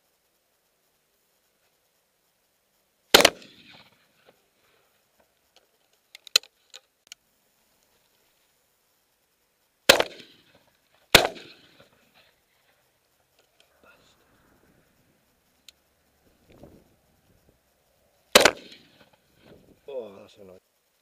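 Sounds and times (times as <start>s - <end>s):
shotgun shots: 3.1s - 3.9s, 9.9s - 11.9s, 18.3s - 19.1s
sharp clicks: 3.1s - 4.0s, 5.3s - 7.2s, 9.9s - 12.0s, 15.4s - 17.4s, 18.2s - 19.2s.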